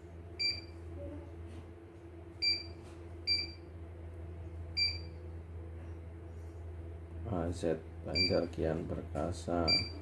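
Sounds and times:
steady low hum: 0.0s - 10.0s
electronic key-press beeps: 0.4s - 0.7s, 2.4s - 2.7s, 3.3s - 3.6s, 4.8s - 5.1s, 9.7s - 10.0s.

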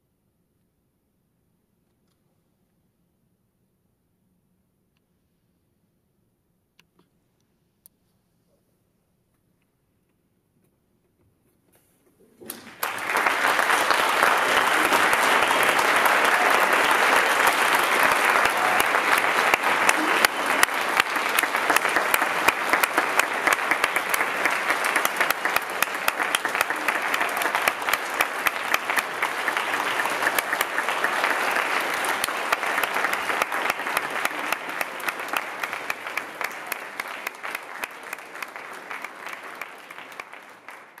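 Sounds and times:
audience applauding: 12.4s - 41.0s.

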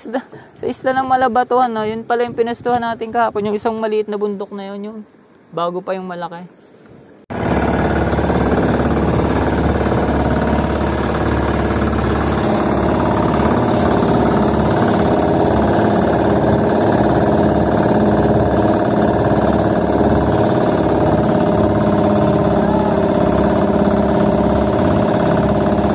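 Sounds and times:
boat engine running: 7.3s - 25.9s.

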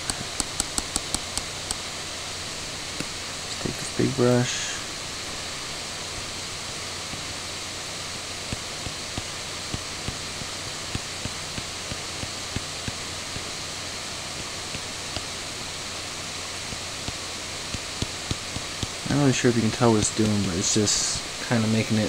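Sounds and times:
steady background hiss: 0.0s - 22.0s
stylus tapping on drawing tablet: 0.4s - 1.5s.

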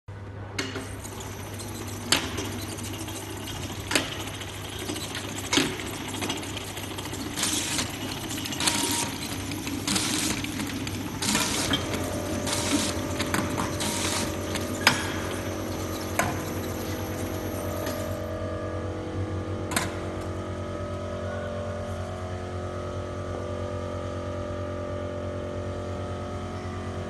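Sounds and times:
labeling machine motor hum: 0.6s - 18.7s.

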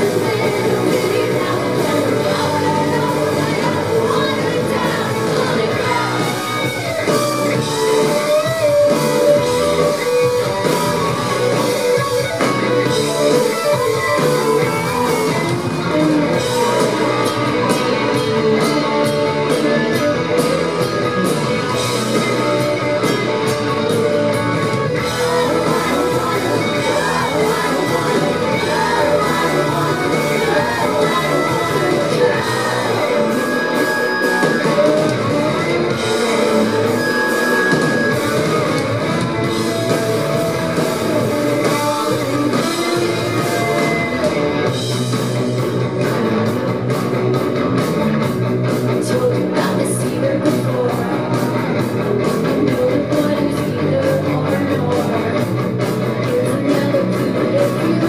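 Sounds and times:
woman singing: 0.0s - 6.9s, 24.9s - 36.9s, 48.9s - 55.6s, 56.2s - 58.0s
drum kit: 0.0s - 58.0s
electric guitars: 0.0s - 58.0s.

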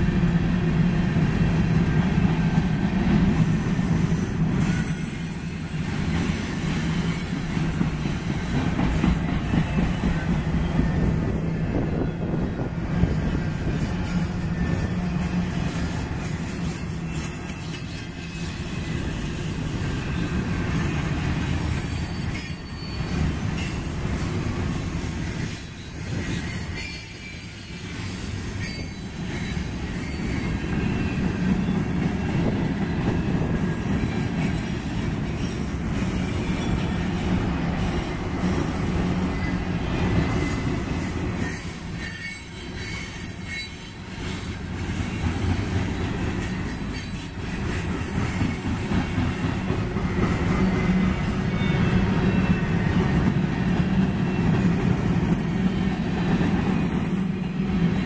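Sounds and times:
train wheels rumbling and clacking: 0.0s - 58.0s
thin wheel squeal: 15.6s - 19.3s, 21.7s - 23.8s, 25.3s - 31.8s, 41.4s - 45.2s.

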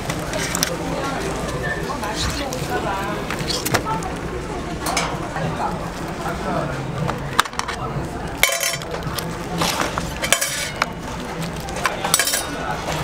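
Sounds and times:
metal tongs clinking on tray: 8.4s - 9.0s, 10.2s - 10.9s, 11.8s - 12.7s.

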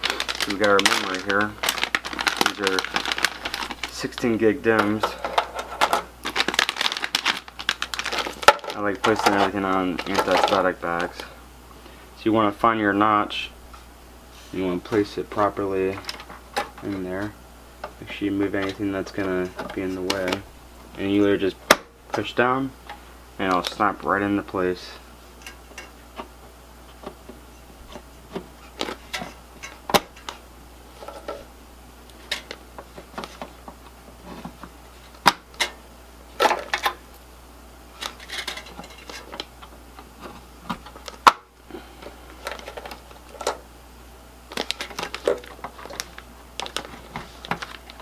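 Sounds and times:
rustling of plastic bag: 0.0s - 5.0s, 6.2s - 11.2s.

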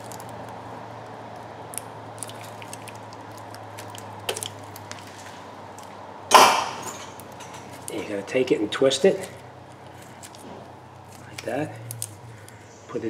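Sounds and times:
steady low hum: 0.0s - 13.0s
gloved hands handling tools: 2.2s - 8.2s, 9.0s - 12.7s.

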